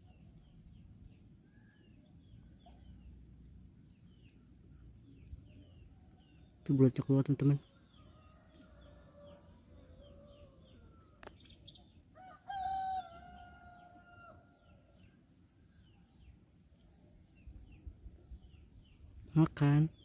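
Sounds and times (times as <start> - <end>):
small birds chirping: 0.0 - 20.0
rooster crowing: 12.2 - 14.8.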